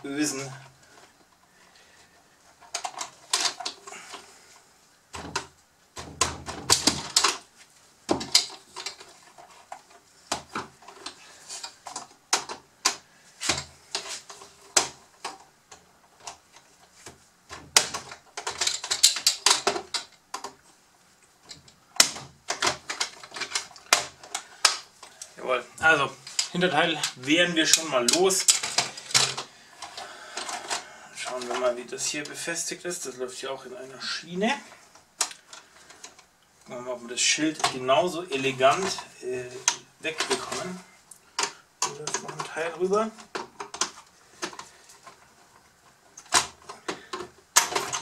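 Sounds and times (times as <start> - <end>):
plastic toy parts clicking: 17.7 - 20.6, 21.4 - 25.3, 26.2 - 30.8.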